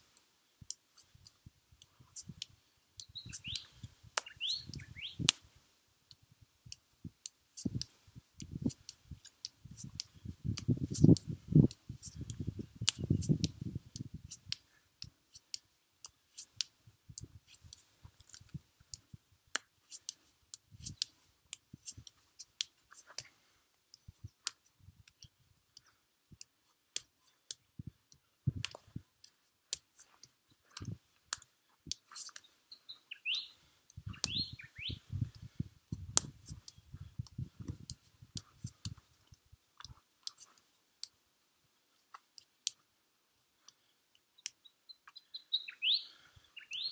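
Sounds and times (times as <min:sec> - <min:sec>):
bird chirping: 0:03.0 - 0:05.3, 0:32.2 - 0:35.2, 0:44.4 - 0:46.9
sharp clicks: 0:34.2 - 0:34.5.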